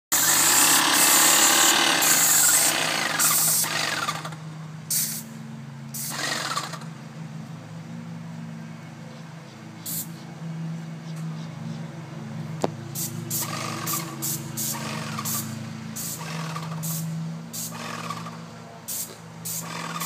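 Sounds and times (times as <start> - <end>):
paint spray gun hissing: 0.1 - 4.0, 4.9 - 5.3, 13.0 - 18.2, 18.9 - 20.0.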